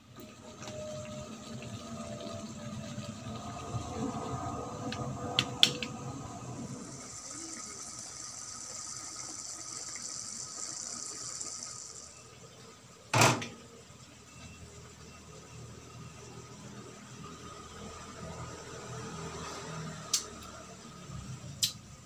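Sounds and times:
sauce bubbling in a wok: 0.0s - 13.0s
high hiss: 3.1s - 13.0s.

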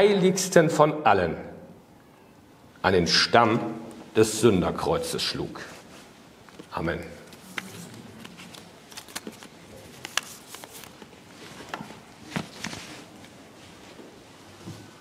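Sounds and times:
papers rustling: 5.7s - 14.0s.

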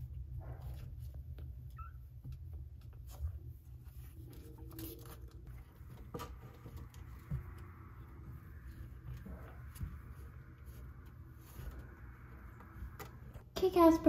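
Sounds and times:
low hum: 3.9s - 13.5s.

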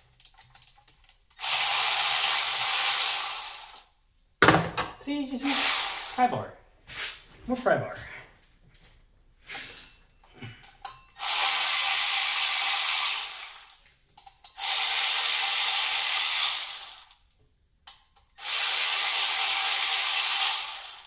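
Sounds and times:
cordless electric ratchet running: 1.4s - 3.8s, 5.5s - 6.3s, 11.2s - 13.7s, 14.6s - 17.2s, 18.4s - 21.0s.

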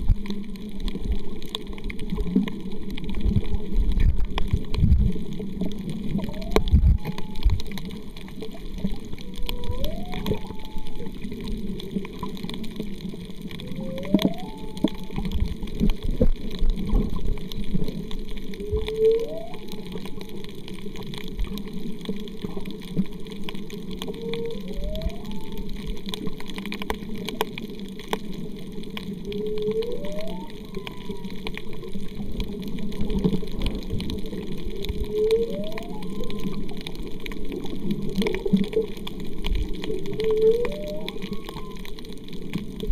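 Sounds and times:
rushing underwater noise: 0.0s - 42.9s
whale song whoops: 6.1s - 7.9s, 8.7s - 11.4s, 13.5s - 15.5s, 18.6s - 20.5s, 23.9s - 26.1s, 29.2s - 31.7s, 34.7s - 36.9s, 39.8s - 42.4s.

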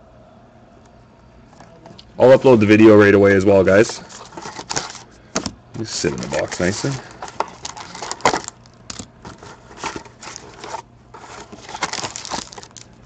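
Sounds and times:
foil packs rustling: 3.6s - 5.2s, 5.8s - 13.0s.

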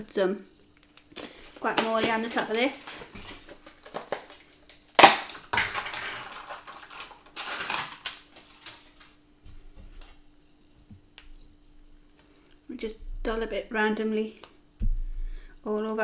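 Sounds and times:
crackling rustling packaging: 0.6s - 13.7s
plastic container cracking: 1.6s - 9.1s.

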